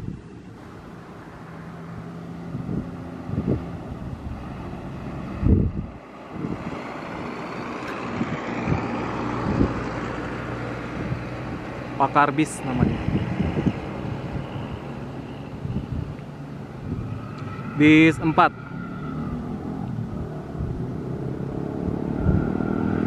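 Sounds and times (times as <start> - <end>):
diesel bus engines droning: 0.0 - 23.0
wind thumps on microphone: 2.4 - 10.0, 12.8 - 14.9.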